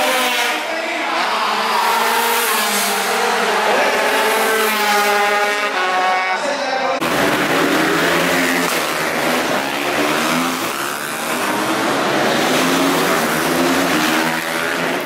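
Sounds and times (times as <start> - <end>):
racing motorcycle engines passing: 0.0 - 15.0
steady rush of noise: 6.4 - 15.0.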